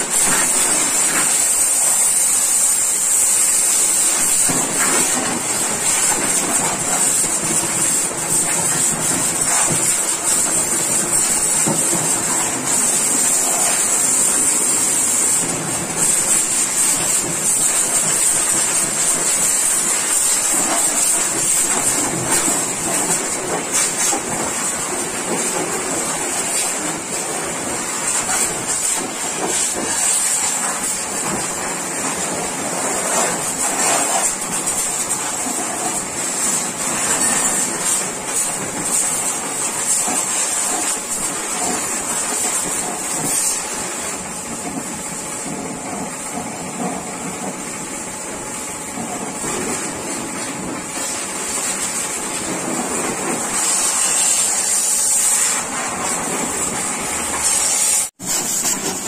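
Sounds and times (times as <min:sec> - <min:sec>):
pressure washer jet hissing: 0:00.0 - 0:59.0
water spattering off metal bodywork: 0:00.0 - 0:59.0.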